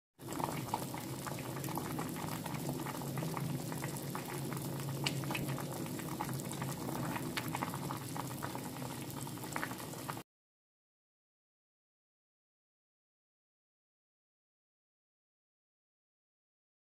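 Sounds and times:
stew boiling and bubbling: 0.2s - 10.2s.

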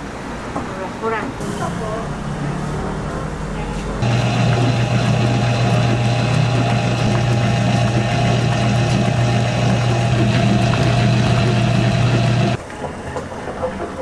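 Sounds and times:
dough mixer motor hum: 4.0s - 12.6s.

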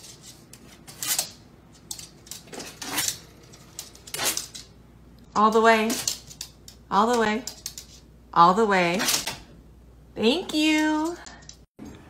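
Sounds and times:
dog claws on hardwood floor: 0.0s - 4.8s, 5.5s - 8.1s
dog paws scraping door: 0.0s - 4.8s.

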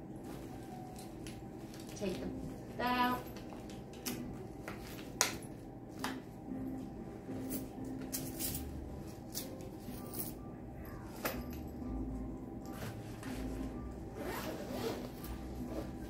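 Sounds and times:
items rustling and clicking in bag: 0.1s - 10.3s.

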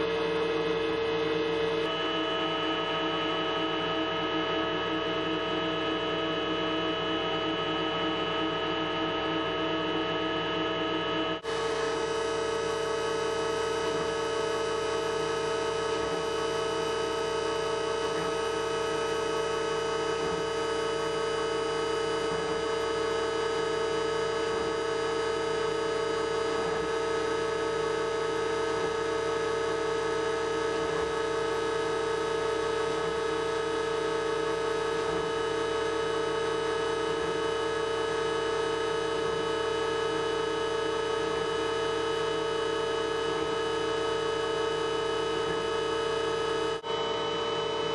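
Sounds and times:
milling machine spindle whine: 0.0s - 11.2s, 46.8s - 47.9s.

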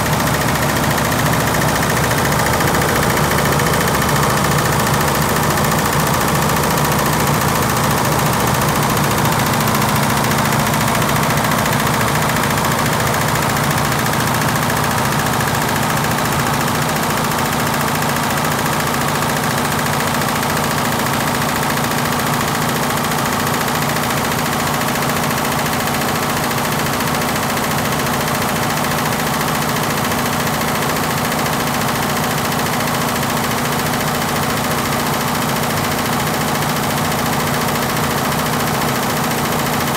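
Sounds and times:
embroidery machine clattering: 0.0s - 18.8s.

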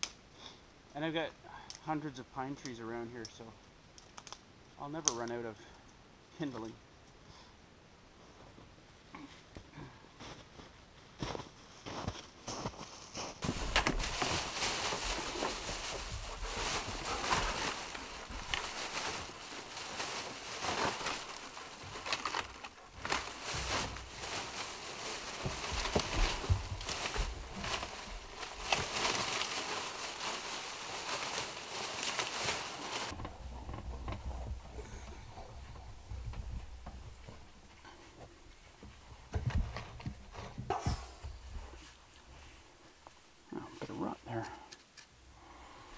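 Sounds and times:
plastic bag rustling: 13.2s - 37.8s
twigs clattering into box: 13.4s - 34.3s.

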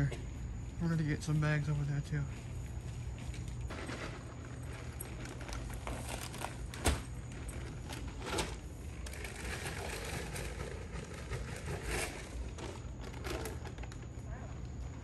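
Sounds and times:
sandbags rustling and knocking: 3.2s - 14.1s.

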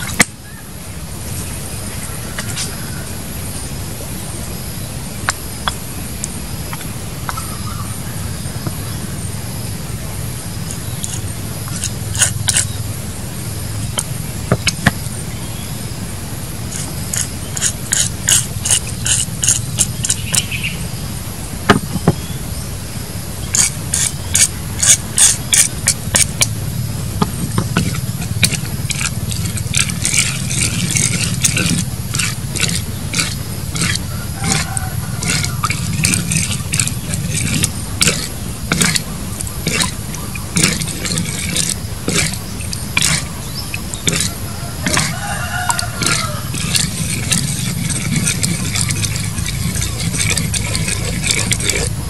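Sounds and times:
steady low hum: 0.0s - 52.0s
spoon scraping and tapping bowl: 27.2s - 40.0s, 43.9s - 51.9s.

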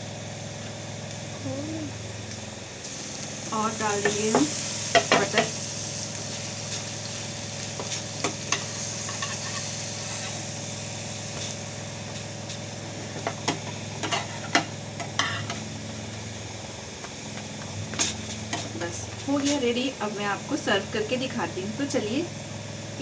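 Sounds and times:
butter sizzling in a frying pan: 2.8s - 15.7s.

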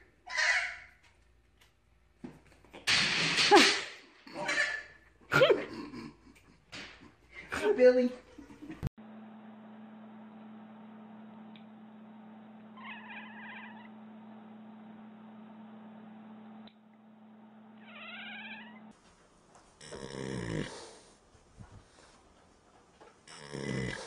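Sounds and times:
horse snoring loudly: 19.8s - 21.0s, 23.3s - 24.0s.

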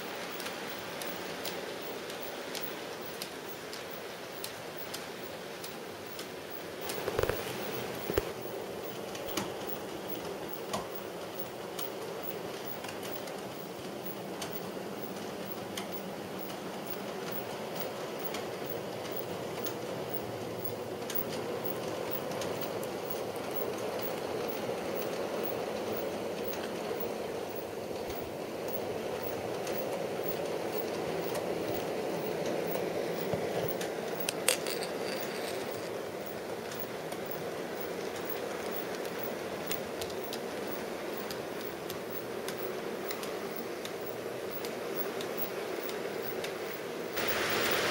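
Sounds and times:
wheels clicking over rail joints: 29.2s - 46.6s.

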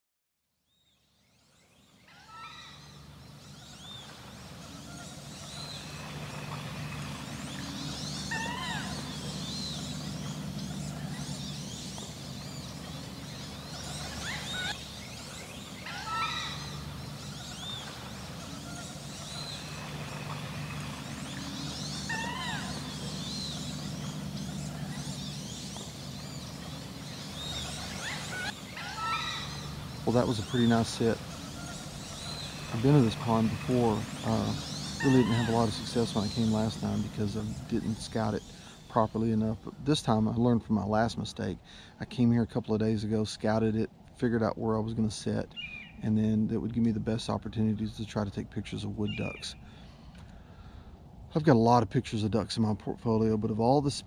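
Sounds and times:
steady low hum: 1.6s - 54.0s
ducks whistling calls: 2.0s - 40.3s.

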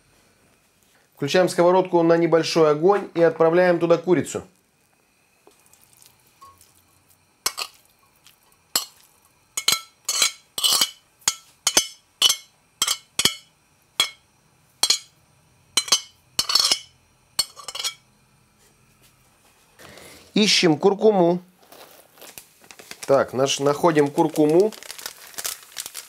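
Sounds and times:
metal spoon clinking ceramic bowl: 7.5s - 7.8s, 8.8s - 14.2s, 14.8s - 15.1s, 15.8s - 18.0s.

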